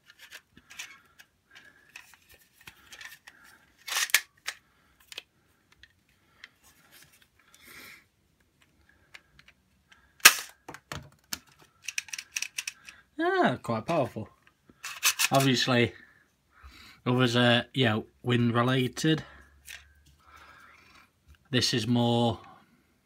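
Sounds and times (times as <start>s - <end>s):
toy blaster scraping rasp: 14.8s - 15.3s.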